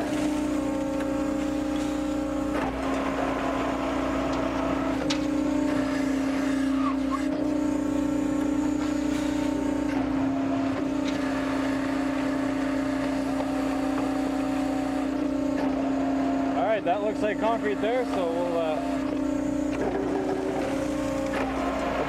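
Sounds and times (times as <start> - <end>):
concrete mixer humming: 0.0 - 22.0.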